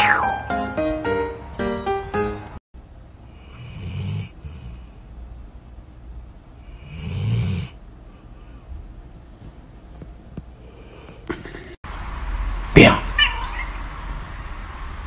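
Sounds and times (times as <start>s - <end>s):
dog snoring: 3.4s - 4.9s, 6.7s - 7.8s.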